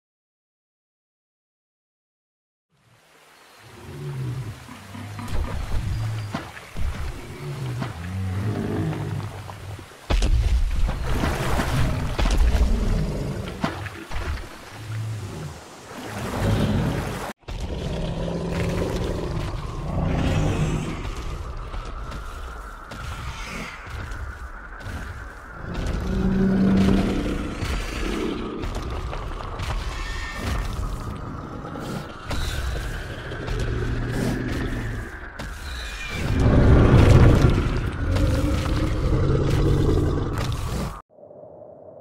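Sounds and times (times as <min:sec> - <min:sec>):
dinosaur growls: 0:16.4 - 0:21.1.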